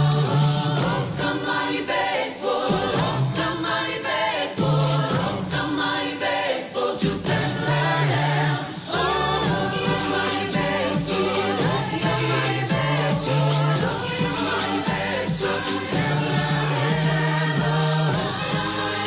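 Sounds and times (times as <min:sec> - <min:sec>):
choir singing: 0:00.0 - 0:19.0
musical accompaniment: 0:00.0 - 0:19.0.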